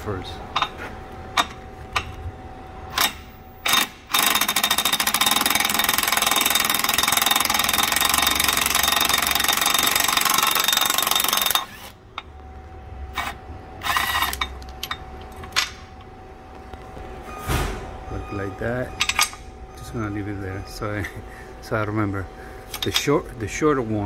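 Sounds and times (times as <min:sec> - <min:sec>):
impact wrench hammering: 0:02.9 - 0:12.4, 0:19.0 - 0:19.5.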